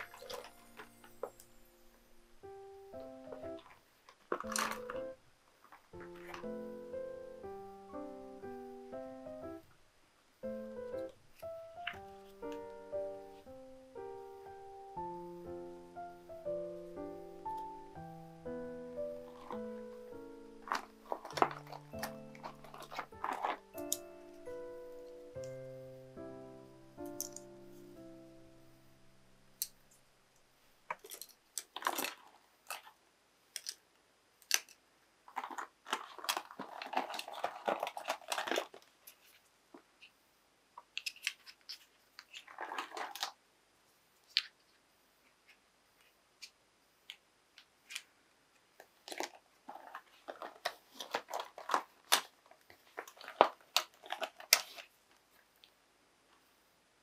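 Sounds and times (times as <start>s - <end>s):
rustling of handled pens: 0.0s - 1.6s, 3.0s - 6.7s, 19.0s - 25.5s, 27.0s - 27.5s, 30.9s - 40.2s, 40.8s - 43.4s, 44.2s - 56.4s
plastic pens clicking and tapping: 3.3s - 5.2s, 20.6s - 24.1s, 27.0s - 27.5s, 34.4s - 38.9s, 40.8s - 43.4s.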